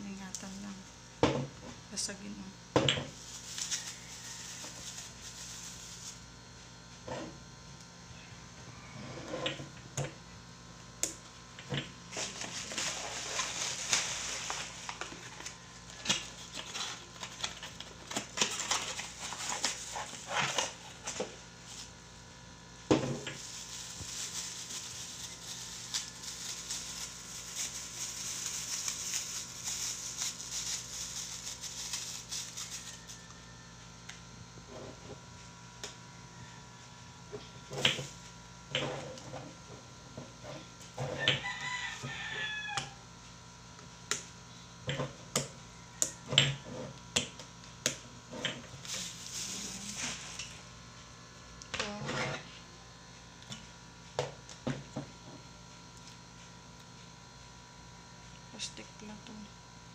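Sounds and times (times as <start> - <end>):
plastic and cardboard rustling: 3.1 - 6.3, 12.1 - 22.0, 23.0 - 33.2, 48.6 - 50.6.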